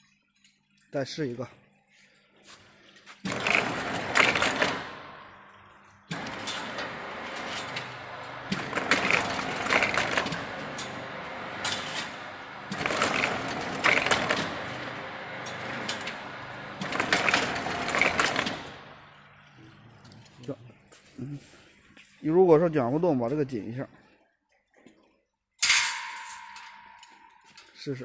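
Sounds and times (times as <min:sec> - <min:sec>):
fence weaving machine clattering: 0:03.2 - 0:05.2, 0:06.1 - 0:19.2.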